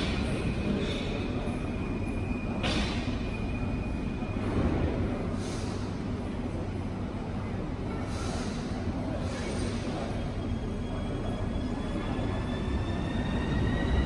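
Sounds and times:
metro train rumbling: 0:00.0 - 0:14.0.

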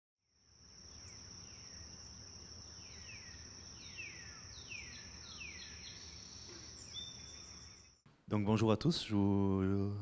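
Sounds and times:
high-pitched insect trill: 0:00.2 - 0:08.0
falling whistled bird calls: 0:02.8 - 0:08.0.

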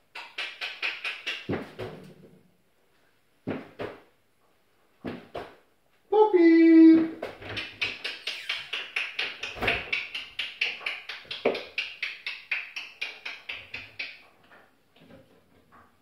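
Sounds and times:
parrot clicking: 0:07.4 - 0:14.3.

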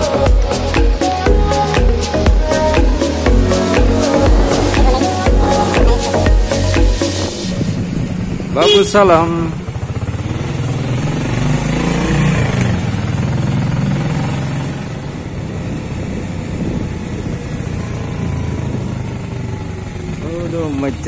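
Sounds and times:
motorcycle engine running: 0:07.6 - 0:21.0.

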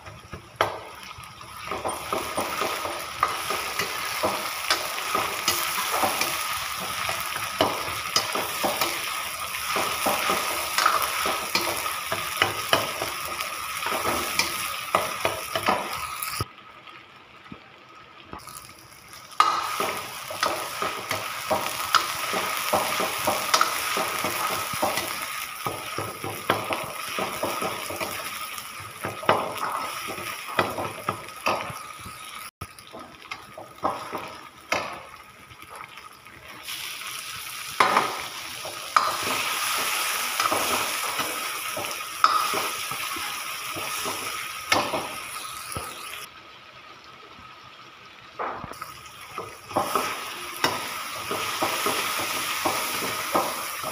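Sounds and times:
onions sizzling in hot oil: 0:00.0 - 0:17.6, 0:18.2 - 0:53.9.

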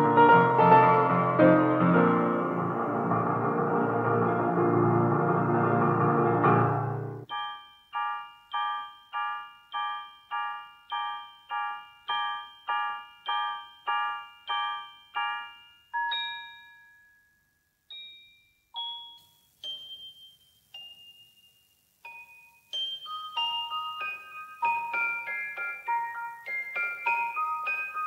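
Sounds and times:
bell-like tuned instrument music: 0:07.3 - 0:17.2, 0:17.9 - 0:28.0.

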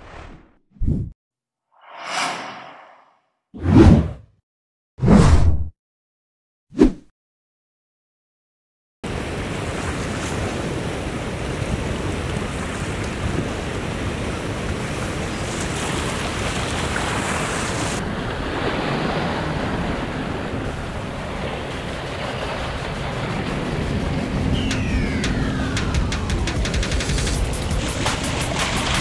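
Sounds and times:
rushing wind: 0:01.8 - 0:04.1, 0:16.2 - 0:29.0
lake waves: 0:09.1 - 0:27.2.

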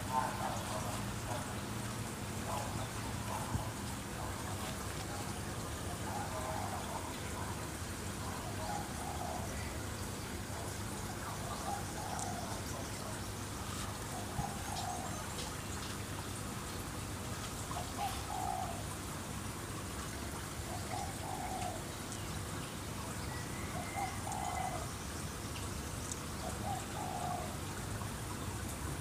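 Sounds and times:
dove cooing: 0:00.0 - 0:01.5, 0:05.8 - 0:07.6, 0:08.2 - 0:09.8, 0:10.6 - 0:13.2, 0:14.0 - 0:15.4, 0:17.8 - 0:19.0, 0:20.6 - 0:22.0, 0:23.5 - 0:24.9, 0:26.4 - 0:27.8
trickling water: 0:00.0 - 0:29.0.

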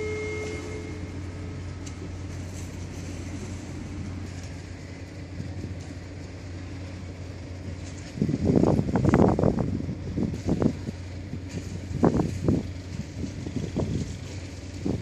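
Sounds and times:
faint held tone: 0:00.0 - 0:01.7
hiss of wind and water: 0:00.0 - 0:15.0
low boat engine rumble: 0:00.0 - 0:15.0.

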